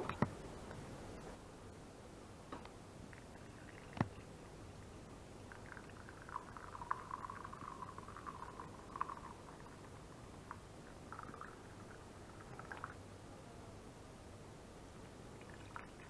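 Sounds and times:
coffee pouring into mug: 5.5 - 13.0, 15.4 - 16.0.

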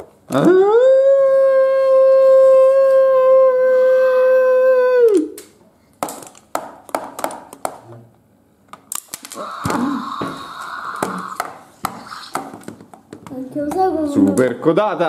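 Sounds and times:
person howling: 0.3 - 5.4, 9.3 - 11.4
plastic toys knocking on table: 6.0 - 7.9, 9.0 - 13.8.

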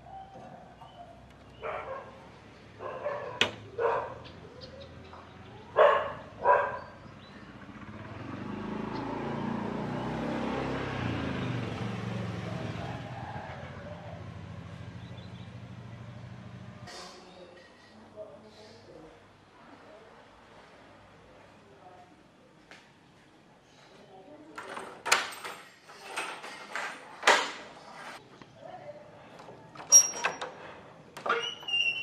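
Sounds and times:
vehicle engine passing: 1.5 - 17.0
dog barking: 1.6 - 4.3, 5.7 - 7.0.

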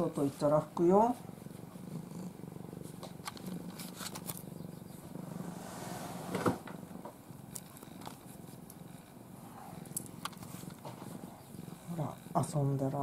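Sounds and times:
cloth rubbing on fur: 0.0 - 4.2, 10.4 - 11.4
cat purring: 0.0 - 13.0.

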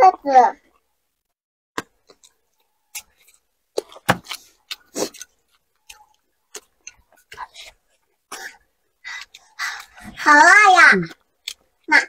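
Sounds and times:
mouth clicks and smacks: 1.8 - 10.0, 11.0 - 12.0
chewing fried food: 1.9 - 10.2, 11.0 - 12.0.

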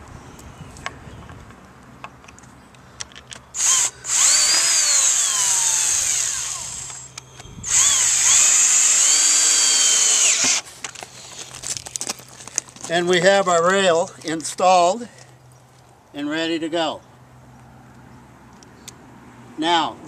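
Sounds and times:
power drill driving screws: 3.6 - 10.7.

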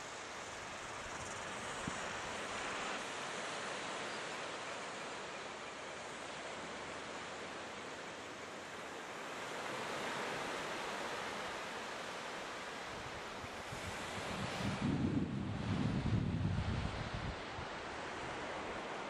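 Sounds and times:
small waves breaking on beach: 0.0 - 19.0.

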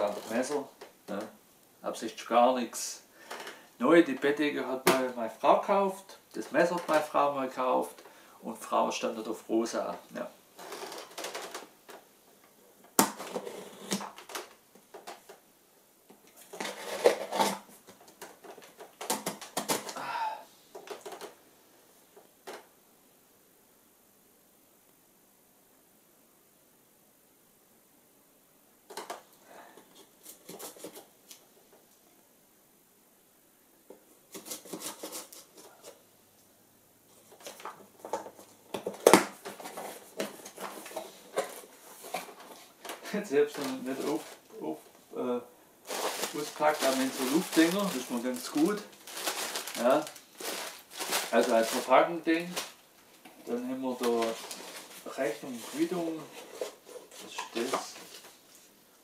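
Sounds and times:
cardboard scraping and crackling: 16.4 - 17.7, 34.3 - 36.0, 37.2 - 44.8, 45.9 - 52.8, 53.4 - 58.4
knife slitting packing tape: 34.3 - 35.5.

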